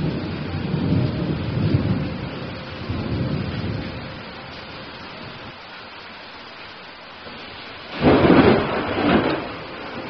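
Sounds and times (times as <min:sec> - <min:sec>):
rolling thunder: 0:00.0 - 0:04.2, 0:07.3 - 0:10.0
steady rain: 0:00.0 - 0:10.0.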